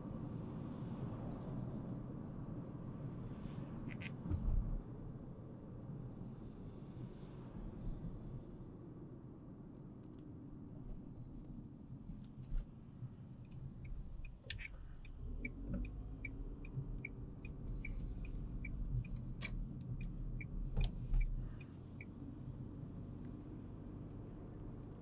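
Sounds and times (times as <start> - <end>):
car engine and road rumble: 0.0 - 25.0
turn signal ticking: 13.4 - 22.2.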